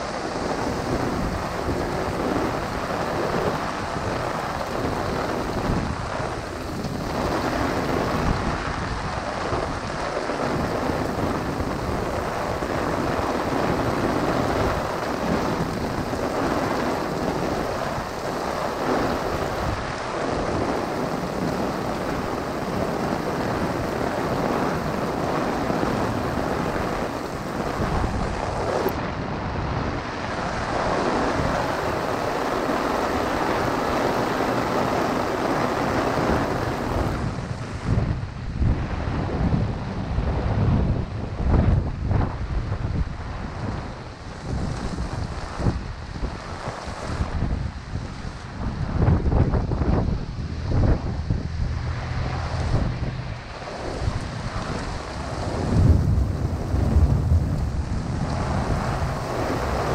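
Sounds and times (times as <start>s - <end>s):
heavy rain on an umbrella: 0.0s - 59.9s
wind buffeting microphone: 0.0s - 59.9s.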